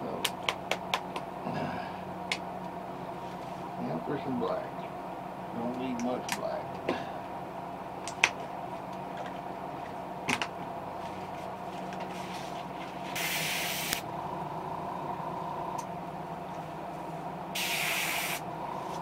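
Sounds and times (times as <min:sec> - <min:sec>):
airbrush spray bursts: 0:13.2 - 0:14.0, 0:17.6 - 0:18.4.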